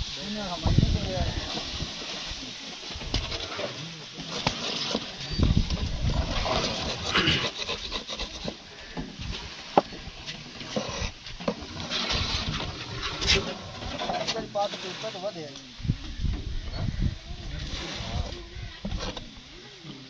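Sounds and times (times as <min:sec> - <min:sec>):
metal scraper scraping a tray: 0:06.2 - 0:08.6.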